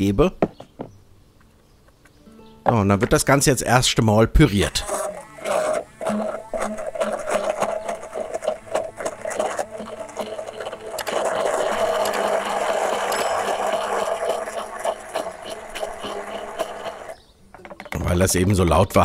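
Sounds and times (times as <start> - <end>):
immersion blender whirring: 4.7 - 17.2.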